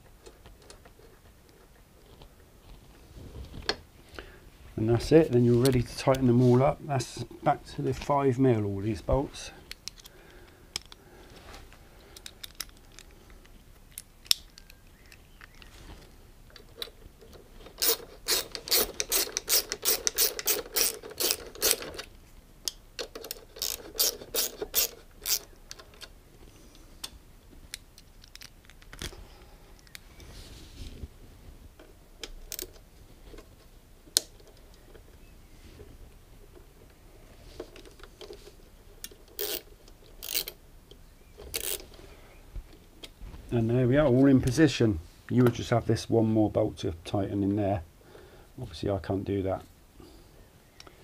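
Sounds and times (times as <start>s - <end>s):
ratchet driver clicking: 17.8s - 22.0s, 23.2s - 25.8s, 39.4s - 40.6s, 41.5s - 41.8s.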